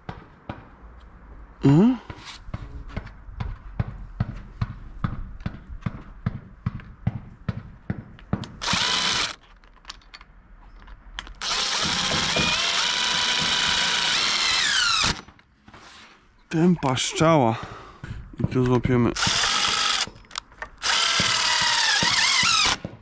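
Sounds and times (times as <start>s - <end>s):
cordless drill driving screws: 8.6s - 9.4s, 11.2s - 15.4s, 19.2s - 22.8s.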